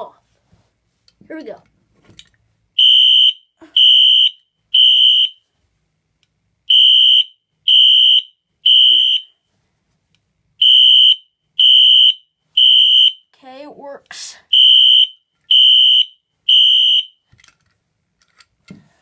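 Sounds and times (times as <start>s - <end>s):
fire alarm beeps: 2.8s - 5.4s, 6.7s - 9.3s, 10.6s - 13.2s, 14.5s - 17.2s.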